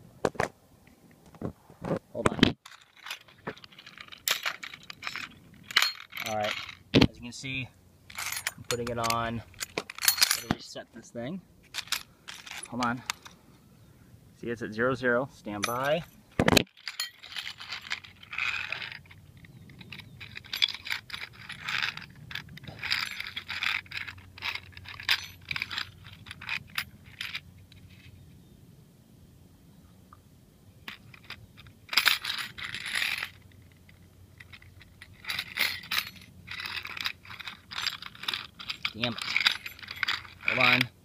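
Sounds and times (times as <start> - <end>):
handling clicks and rattles: 2.2 - 7.5, 8.1 - 10.7, 11.6 - 13.4, 15.5 - 28.1, 30.8 - 41.0.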